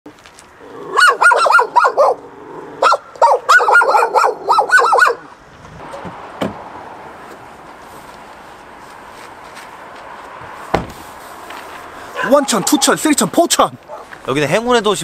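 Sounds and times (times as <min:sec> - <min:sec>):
dogs barking: 0:00.9 - 0:05.3, 0:12.1 - 0:13.0, 0:13.8 - 0:14.2
single thump: 0:06.0 - 0:06.6, 0:10.7 - 0:11.0.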